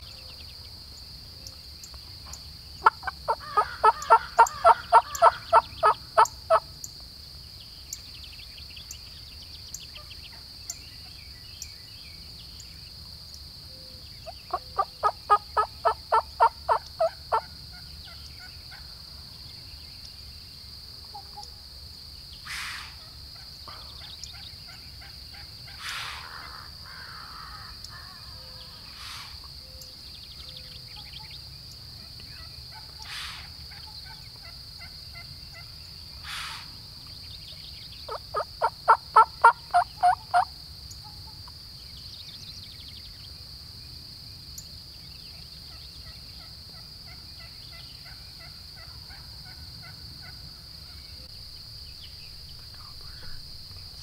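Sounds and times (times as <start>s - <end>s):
turkey yelping: 2.8s - 6.6s, 14.5s - 17.5s, 38.1s - 40.4s.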